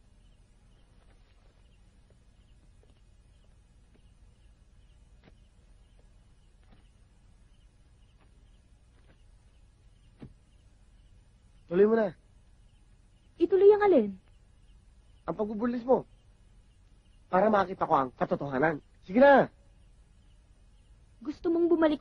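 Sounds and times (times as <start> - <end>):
faint low hum: 0.0 - 22.0
insect chirping: 0.0 - 22.0.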